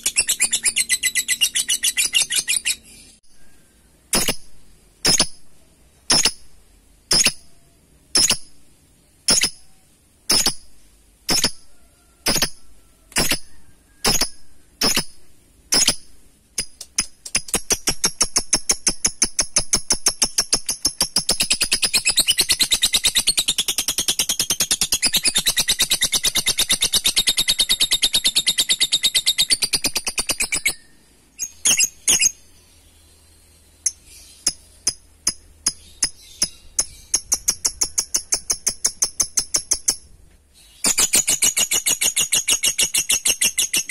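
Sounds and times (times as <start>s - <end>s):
lovebird chirping: 0.0s - 43.9s.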